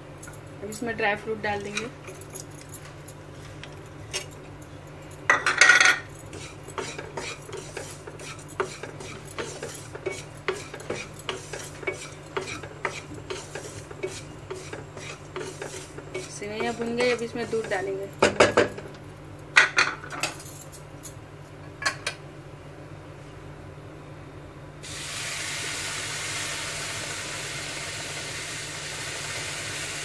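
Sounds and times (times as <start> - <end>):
spatula scraping pan: 6.3 - 18.0.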